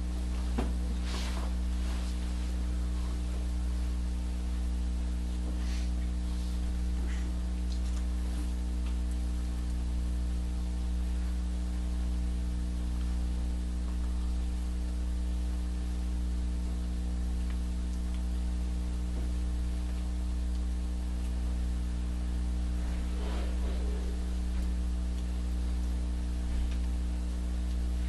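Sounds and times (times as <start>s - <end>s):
electrical mains hum: 0.0s - 28.0s
faint rustle: 0.4s - 3.5s, 22.8s - 24.8s.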